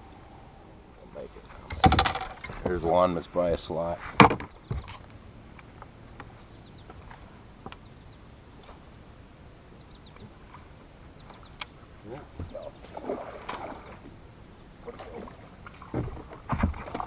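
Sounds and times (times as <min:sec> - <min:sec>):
faint high hiss: 0:00.0 - 0:16.4.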